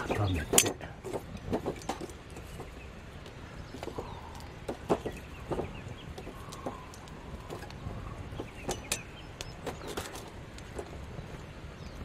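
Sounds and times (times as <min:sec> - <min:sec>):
wood fire crackling and popping: 0:00.0 - 0:12.0
faint bird calls: 0:02.5 - 0:10.2.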